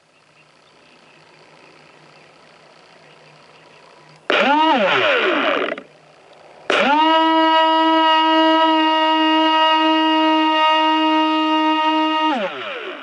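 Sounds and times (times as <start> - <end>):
electric motor whining: 4.3 - 13.0.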